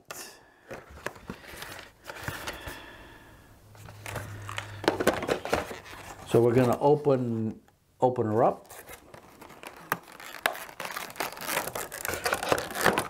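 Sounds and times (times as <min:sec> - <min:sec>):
cardboard box and plastic rustling: 0:03.8 - 0:07.0, 0:08.6 - 0:13.0.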